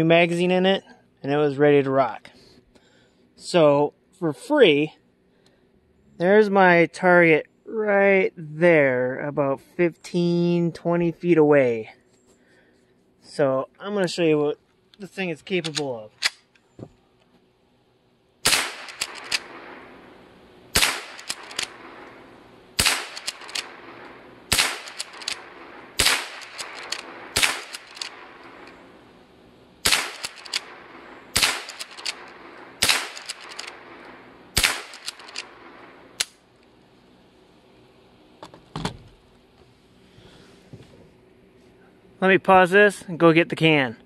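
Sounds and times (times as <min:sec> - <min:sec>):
rifle action clicks: 0:15.6 - 0:16.6, 0:18.5 - 0:19.6, 0:20.8 - 0:21.8, 0:22.8 - 0:28.8, 0:29.8 - 0:30.8, 0:31.4 - 0:36.4
rifle shots: 0:18.4 - 0:29.2, 0:29.8 - 0:36.4.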